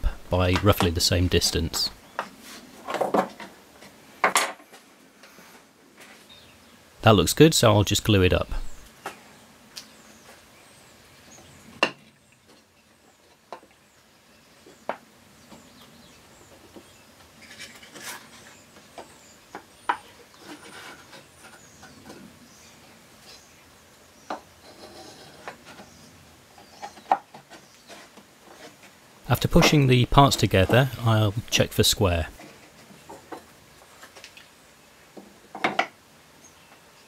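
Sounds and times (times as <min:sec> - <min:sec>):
soft rubbing and rustling: 0:26.5 - 0:29.0
wood-on-wood knocks: 0:35.2 - 0:36.0.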